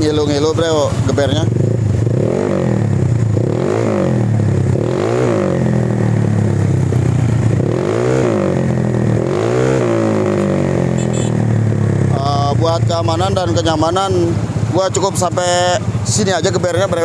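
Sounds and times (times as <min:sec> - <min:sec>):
scooter engine revving: 0:00.0 - 0:17.0
scooter engine idling: 0:05.8 - 0:07.6, 0:11.0 - 0:17.0.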